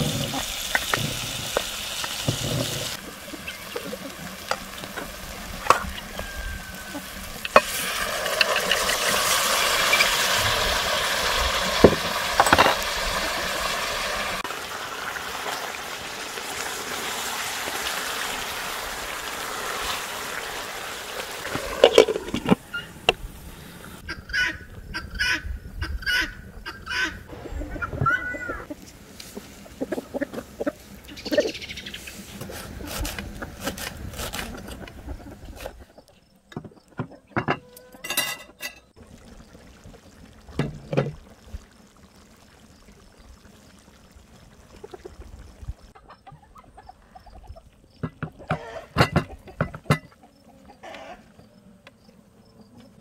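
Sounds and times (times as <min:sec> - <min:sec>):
chickens clucking: 0:24.0 - 0:32.2, 0:34.7 - 0:38.0, 0:44.7 - 0:51.2.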